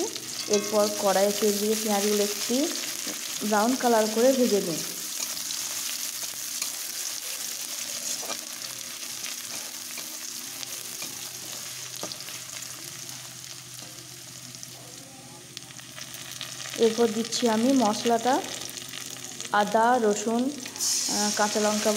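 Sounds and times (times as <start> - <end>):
onions sizzling in hot oil: 0.0 - 21.9
spatula scraping a pan: 8.0 - 8.6.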